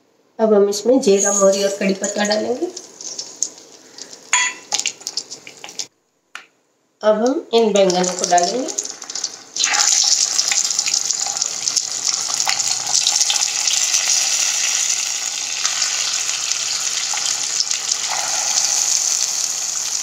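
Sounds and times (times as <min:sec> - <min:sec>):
hot oil sizzling: 0:01.1 - 0:05.9, 0:07.8 - 0:20.0
sharp crackles: 0:02.0 - 0:05.9, 0:07.9 - 0:13.9.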